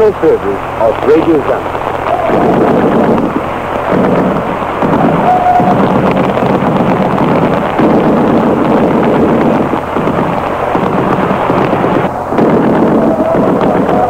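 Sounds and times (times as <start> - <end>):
muffled radio programme: 0.0 - 5.9
radio static hiss and crackle: 0.0 - 14.0.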